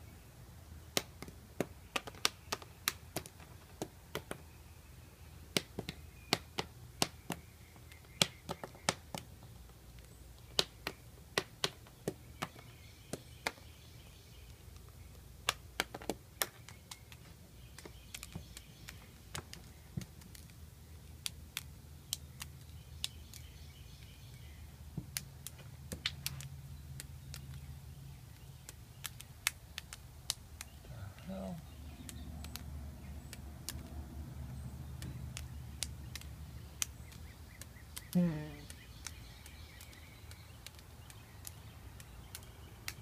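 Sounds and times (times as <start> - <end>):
moth popping clicks: 14.4 - 24.1, 25.0 - 43.0.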